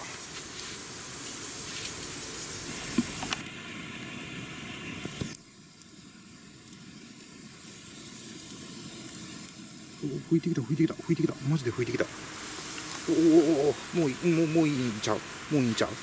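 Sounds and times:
steam hissing: 0.0s - 5.4s, 7.4s - 16.0s
fire crackling: 0.0s - 16.0s
liquid sizzling on hot bamboo: 0.0s - 16.0s.

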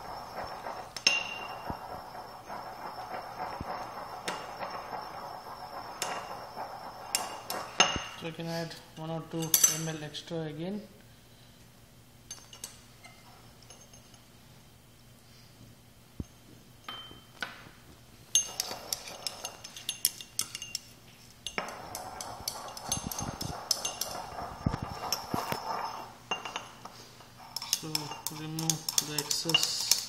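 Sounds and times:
pestle clinking in mortar: 27.5s - 30.0s.

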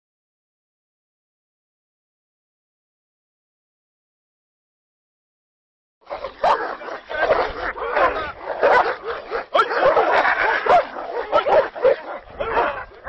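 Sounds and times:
dogs fighting barking and crying: 6.1s - 13.0s.

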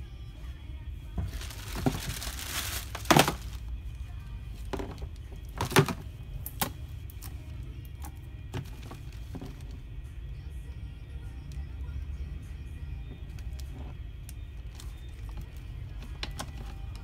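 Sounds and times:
background music: 0.0s - 17.0s
plastic bag crinkling: 1.3s - 3.7s.

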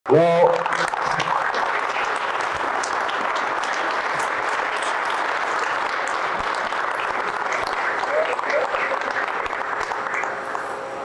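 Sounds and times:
audience applauding: 0.4s - 10.7s
close hand claps: 0.6s - 10.6s.

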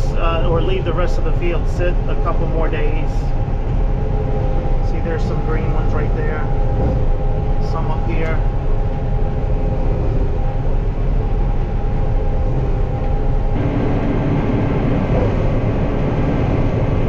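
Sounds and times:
combine harvester drone: 0.0s - 17.0s
low hum: 0.0s - 17.0s.

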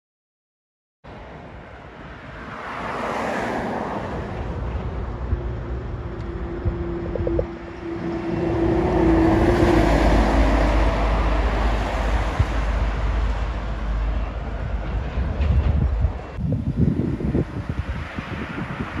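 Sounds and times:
heavy traffic passing: 1.1s - 19.0s
deep rumble: 5.2s - 9.5s.

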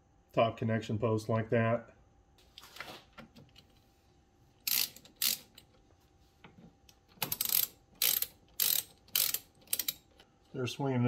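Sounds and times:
ratchet wrench clicking: 4.6s - 5.7s, 7.2s - 10.2s.

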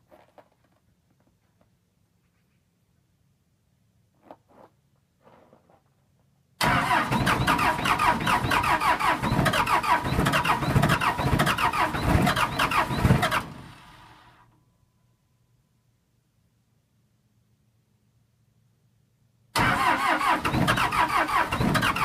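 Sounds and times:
diesel engine cranking on starter: 6.6s - 14.4s, 19.6s - 22.0s.

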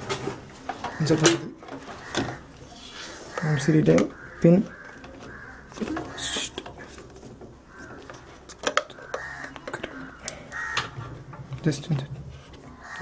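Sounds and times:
plastic and metal clicks: 8.0s - 12.0s.

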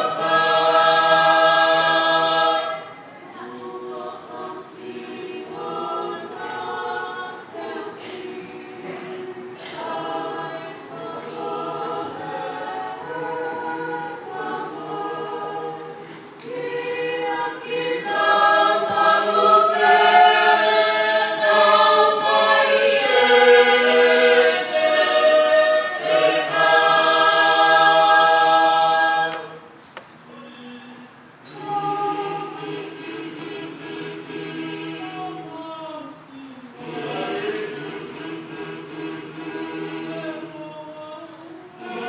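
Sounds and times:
choir singing a hymn: 0.0s - 42.0s.

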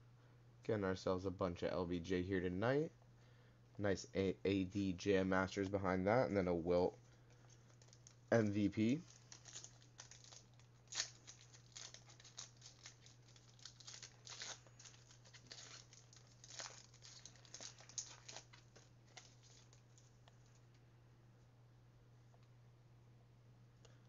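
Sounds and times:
low electrical hum: 0.0s - 24.0s
cards being handled: 7.1s - 20.0s
foil wrapper tearing and crinkling: 7.6s - 8.2s, 8.8s - 20.0s.

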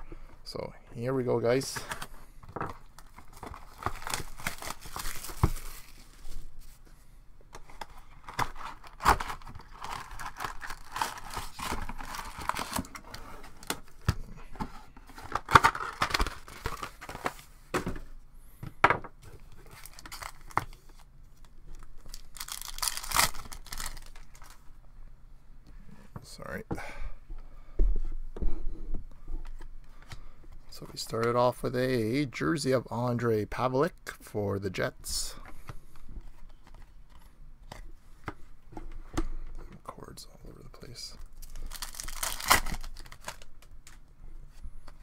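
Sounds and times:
plastic wrap tearing and crinkling: 2.9s - 6.3s, 7.8s - 13.9s, 15.2s - 17.4s, 19.5s - 24.6s, 41.2s - 44.0s.

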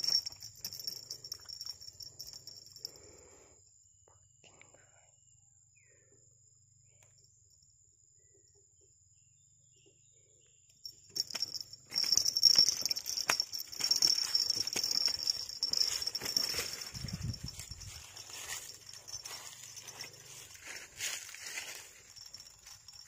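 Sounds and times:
dry leaves rustling: 15.3s - 23.0s.

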